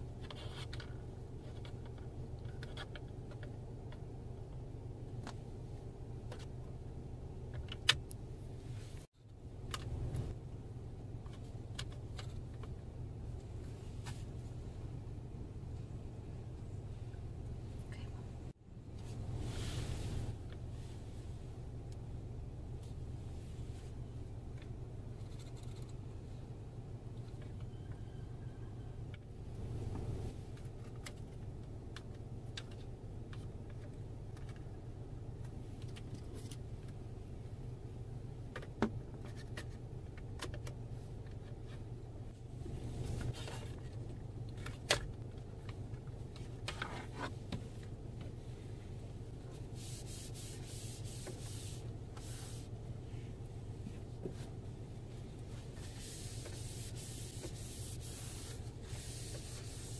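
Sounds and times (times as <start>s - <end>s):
steady low hum: 0.0s - 59.9s
wipe rubbing dashboard: 49.6s - 52.8s, 55.5s - 59.9s
rubbing and scraping: 55.6s - 59.9s.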